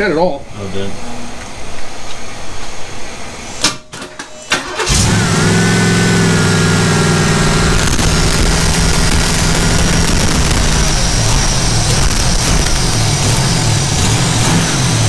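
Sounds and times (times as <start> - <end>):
high whine: 0.9 - 15.0
engine cranking on starter: 4.0 - 15.0
engine running at raised idle: 4.7 - 15.0
engine pops: 7.3 - 15.0.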